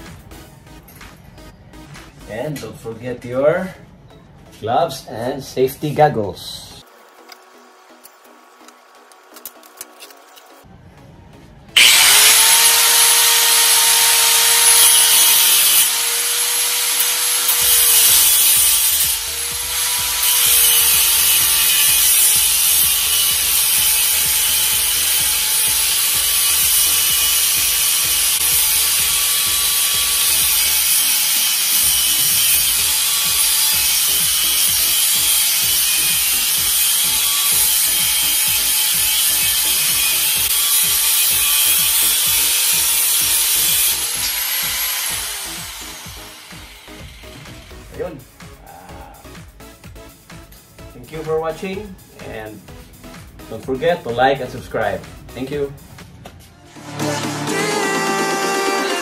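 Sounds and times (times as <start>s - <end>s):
angle grinder motor whine: 11.8s - 47.7s
disc grinding steel: 11.8s - 47.7s.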